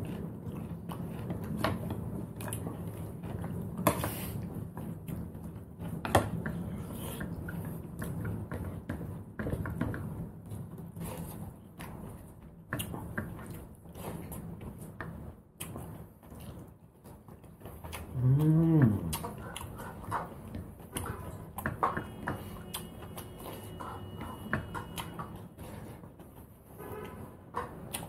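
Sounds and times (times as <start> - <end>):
person humming: 18.2 - 19.2
wet chewing and lip smacks: 18.8 - 21.7.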